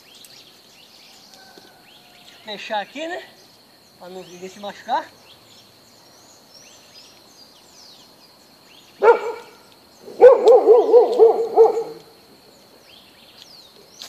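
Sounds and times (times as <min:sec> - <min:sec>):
dog barking and yelping: 0:09.0 - 0:12.1.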